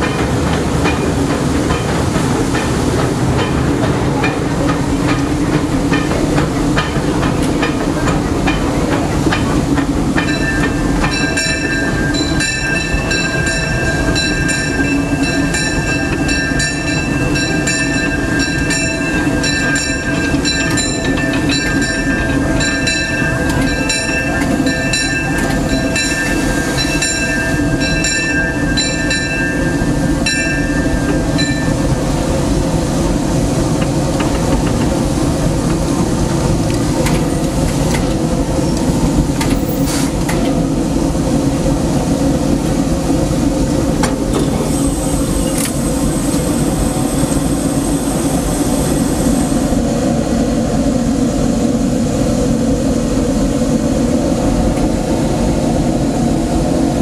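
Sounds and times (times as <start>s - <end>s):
steam locomotive running rumble: 0.0s - 57.0s
locomotive bell ringing: 8.4s - 32.2s.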